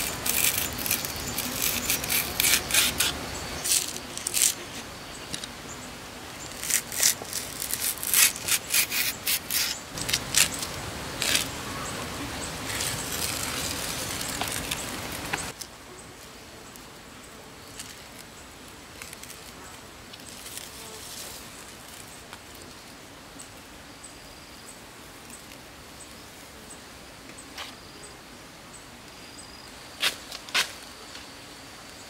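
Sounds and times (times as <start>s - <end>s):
fibre strips tearing: 0.0s - 5.5s, 6.5s - 11.5s
knife scraping plant stalk: 0.0s - 5.5s, 6.5s - 11.5s.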